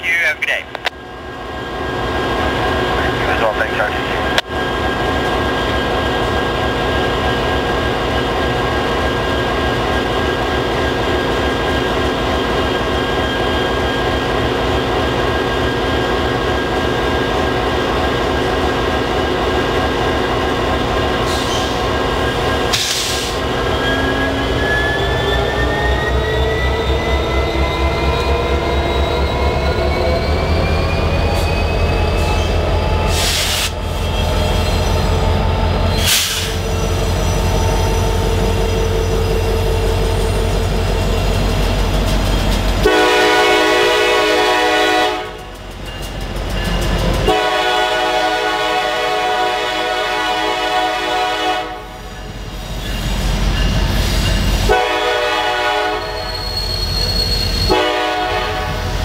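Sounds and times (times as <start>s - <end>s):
short air hisses: 22.7s - 23.4s.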